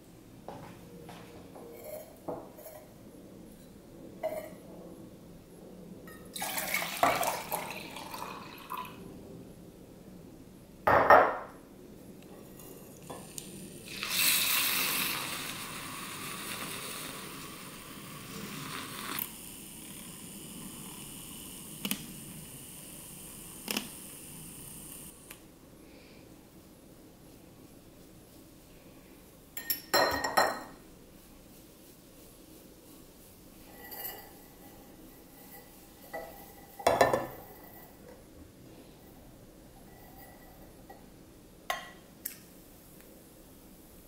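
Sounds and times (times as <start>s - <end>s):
milk pouring into a pitcher: 6.4s - 9.0s, 13.8s - 19.2s
milk frother whirring: 13.4s - 25.3s.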